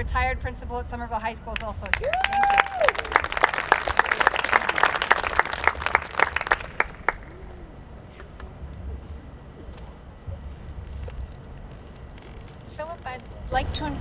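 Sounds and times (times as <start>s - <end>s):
audience clapping: 1.6s - 7.4s.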